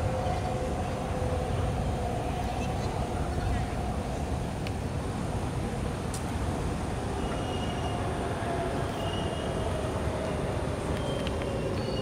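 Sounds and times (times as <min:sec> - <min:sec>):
train rolling on rails: 0:00.0 - 0:12.0
high wheel squeals: 0:07.2 - 0:08.1, 0:08.8 - 0:09.8.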